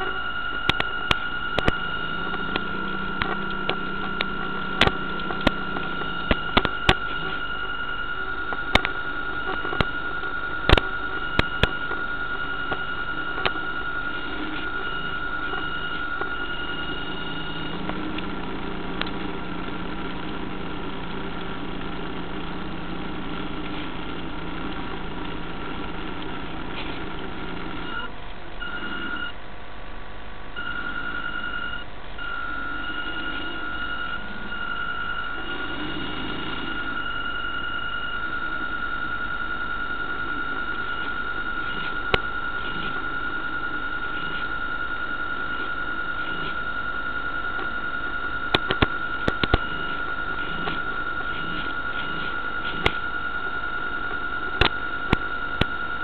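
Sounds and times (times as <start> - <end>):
sharp interference clicks: 0.0 - 29.4, 30.6 - 56.0
electronic whine and hiss: 0.0 - 56.0
low hum: 0.0 - 56.0.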